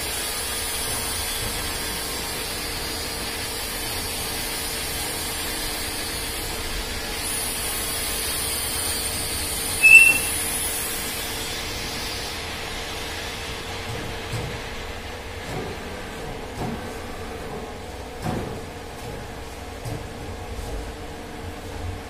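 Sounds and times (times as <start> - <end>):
short high squeal: 9.7 - 10.6.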